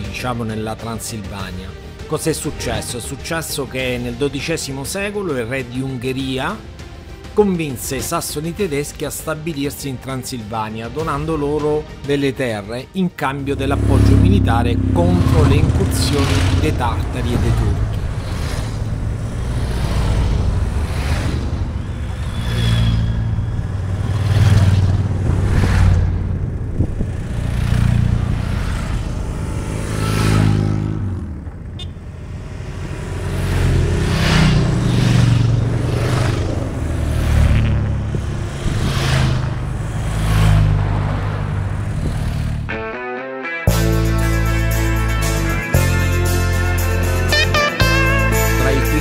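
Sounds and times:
motorcycle engine running: 13.8 - 22.4, 23.2 - 38.6
wind noise: 24.6 - 27.3, 37.6 - 39.7.

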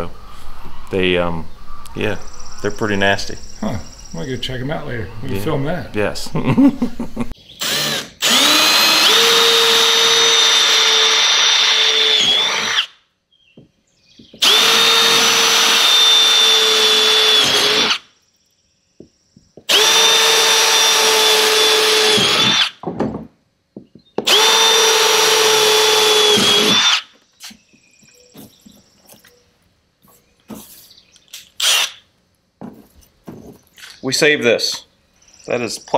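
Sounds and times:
electric drill whining: 7.6 - 13.0, 14.4 - 18.1, 19.7 - 22.8, 24.2 - 27.2, 31.6 - 32.0.

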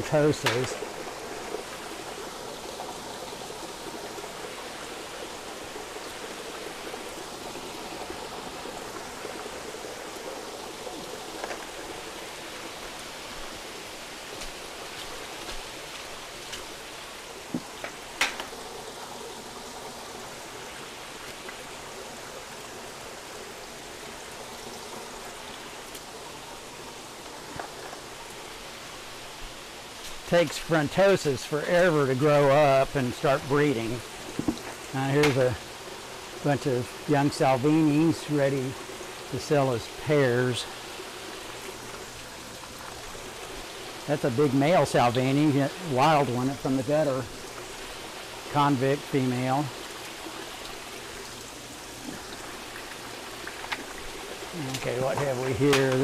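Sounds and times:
water running and trickling: 0.0 - 56.0.

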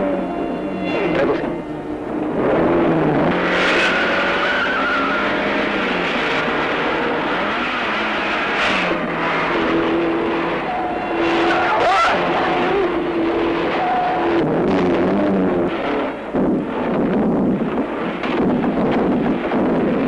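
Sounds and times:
car engines running hard: 0.0 - 20.0
tyres squealing and skidding: 3.6 - 6.0, 7.4 - 14.4.

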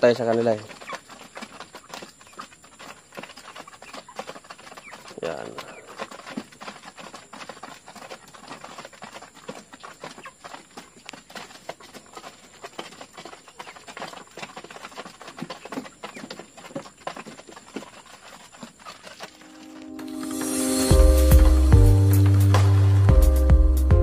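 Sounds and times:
beaks tapping on feeder trays: 0.0 - 19.6.

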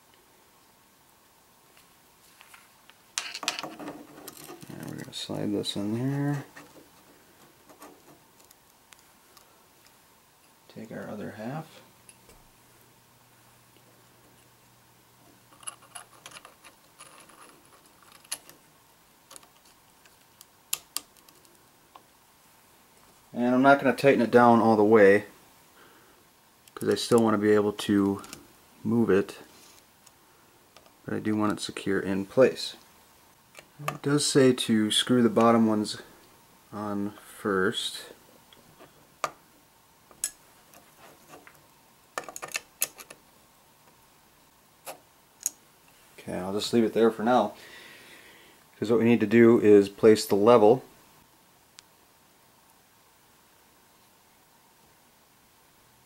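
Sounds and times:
allen key clicking on screws: 15.5 - 18.6
small metal clicks and rattles: 15.5 - 18.6, 19.3 - 22.0, 42.2 - 43.2.

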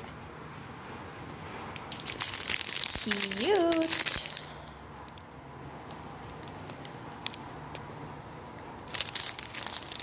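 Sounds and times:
plastic bag rustling: 1.9 - 4.6, 8.8 - 10.0.

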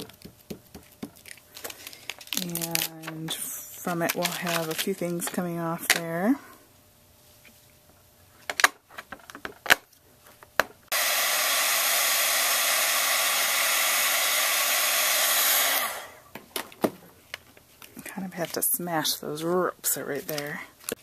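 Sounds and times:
heat gun blowing: 10.9 - 16.3.

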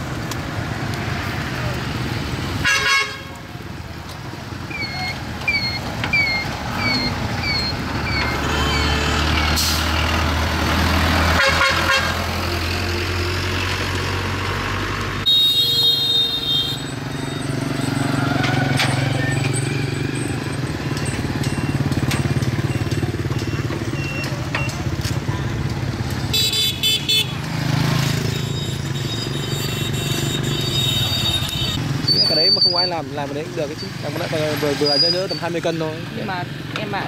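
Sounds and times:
road traffic passing: 0.0 - 37.0
vehicle horn: 2.6 - 3.3, 11.4 - 12.2, 15.2 - 16.9, 26.3 - 27.4.

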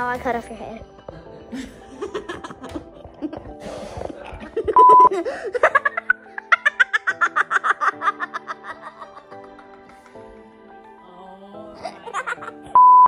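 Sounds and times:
background music: 0.0 - 13.0
loud steady beep: 4.8 - 5.1, 12.8 - 13.0.

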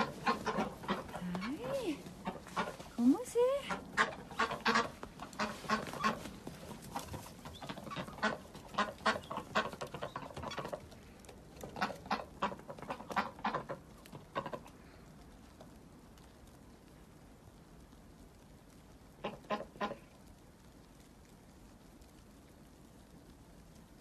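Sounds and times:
ducks quacking: 0.0 - 10.8, 11.6 - 14.7.

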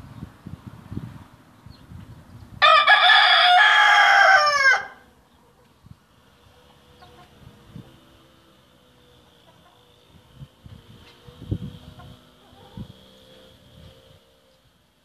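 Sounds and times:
rooster crowing: 2.6 - 5.1.

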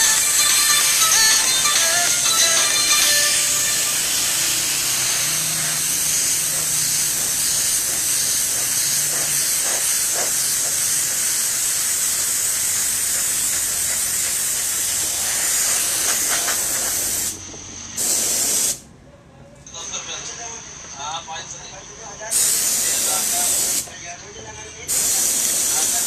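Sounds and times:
spray gun hissing: 4.0 - 18.8, 22.3 - 23.9, 24.9 - 26.0.

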